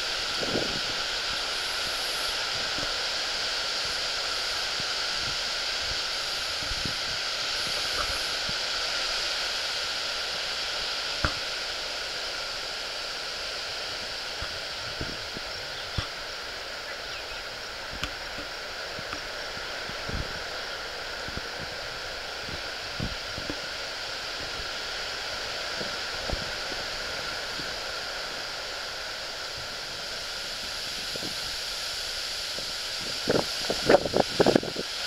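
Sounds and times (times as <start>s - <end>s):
outdoor ambience hiss: 0.0s - 35.0s.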